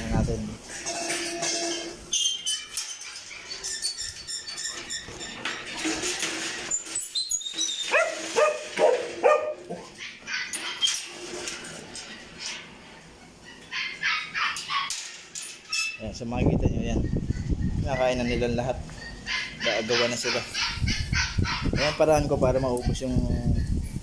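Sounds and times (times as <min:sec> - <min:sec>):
metal cage doors clattering: 0:00.0 - 0:16.3
dogs barking and yelping: 0:02.8 - 0:15.7, 0:17.0 - 0:24.0.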